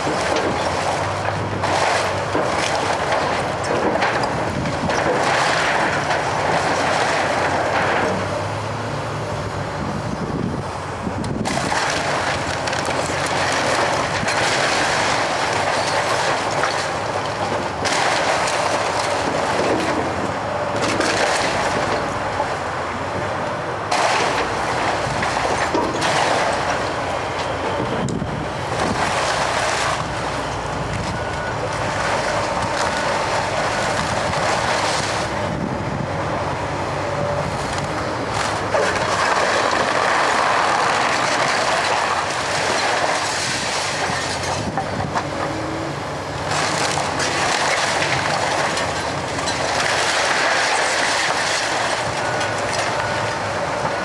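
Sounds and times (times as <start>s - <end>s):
debris breaking and falling: 0.0s - 8.4s, 11.4s - 22.3s, 23.9s - 27.2s, 28.6s - 35.3s, 37.7s - 45.6s, 46.4s - 54.0s
excavator running: 0.0s - 54.0s.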